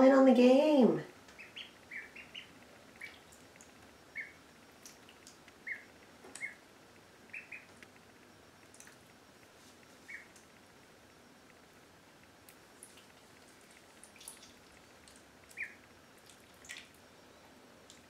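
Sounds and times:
ducklings peeping: 1.3 - 6.7, 7.3 - 7.9, 10.0 - 10.5, 12.8 - 17.5.

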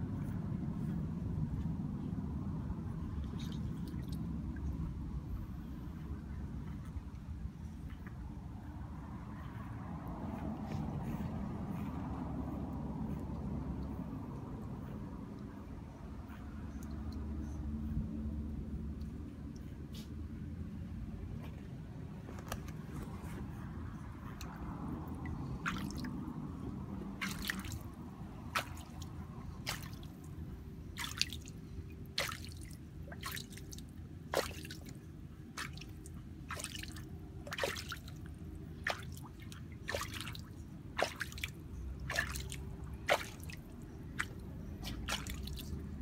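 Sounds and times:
steady low hum: 0.0 - 46.0
water drips and plops: 27.2 - 30.2, 31.0 - 35.0, 35.6 - 45.9.

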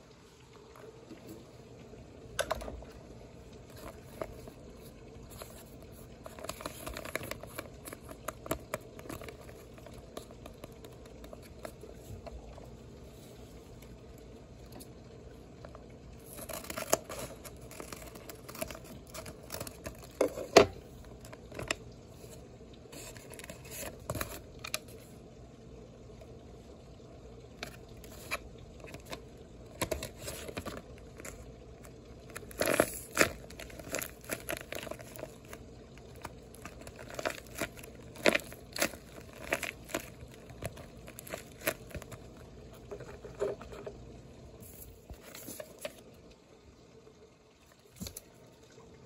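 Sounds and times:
paper rustling and crinkling: 3.6 - 12.2, 16.2 - 22.4, 23.0 - 25.1, 27.6 - 44.0, 44.6 - 46.0.

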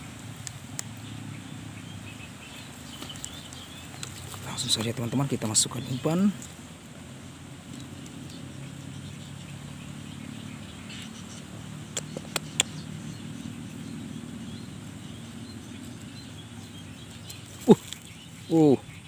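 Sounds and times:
low engine hum: 0.0 - 19.0.

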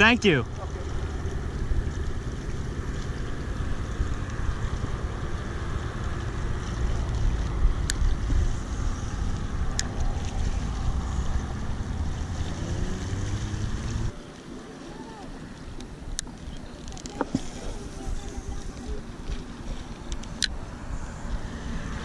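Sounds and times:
wind buffeting microphone: 0.0 - 14.2.

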